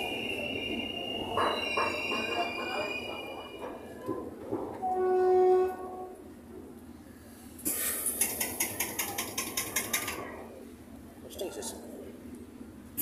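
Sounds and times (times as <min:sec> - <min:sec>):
train wheels clicking and rattling: 0:01.3 - 0:04.9, 0:07.6 - 0:10.4.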